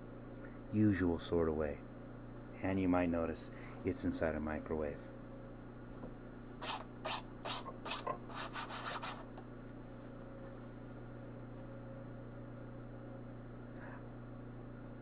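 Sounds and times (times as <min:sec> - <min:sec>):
steady low hum: 0:00.0 - 0:15.0
quick rubbing strokes: 0:06.6 - 0:09.2.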